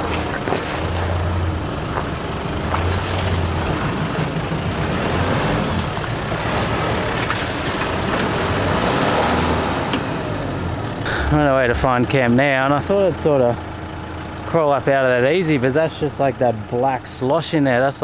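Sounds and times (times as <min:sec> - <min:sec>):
vehicle engine revving: 0:00.0 - 0:12.9.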